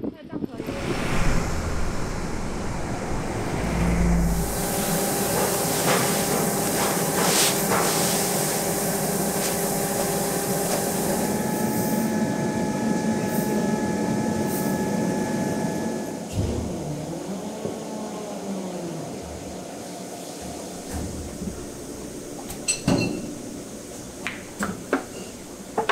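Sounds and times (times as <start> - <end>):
high steady whine: 0.5 - 16.2
plastics machinery hissing and humming: 2.2 - 12.0.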